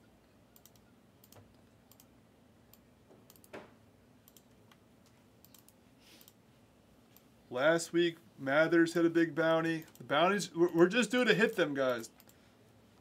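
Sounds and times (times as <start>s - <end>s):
keyboard and mouse clicks: 0.6s - 2.1s, 2.7s - 3.7s, 4.3s - 6.4s.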